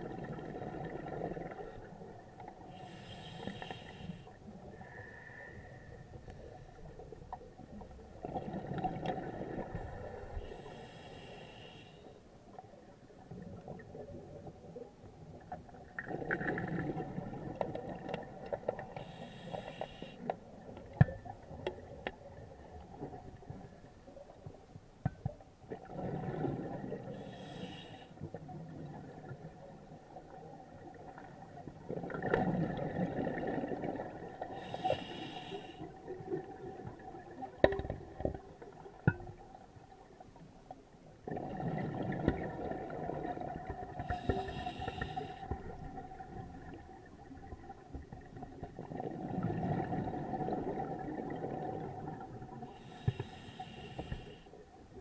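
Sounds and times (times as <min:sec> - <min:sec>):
diver breathing through regulator: 0:02.7 - 0:06.1, 0:10.4 - 0:12.2, 0:18.9 - 0:20.3, 0:27.1 - 0:28.2, 0:34.5 - 0:36.0, 0:44.0 - 0:45.6, 0:52.6 - 0:54.6.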